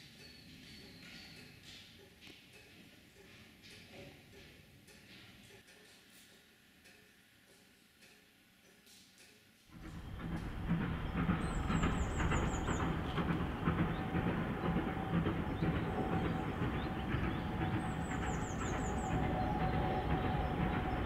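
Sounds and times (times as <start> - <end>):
steam locomotive exhaust rumble: 9.7 - 21.0.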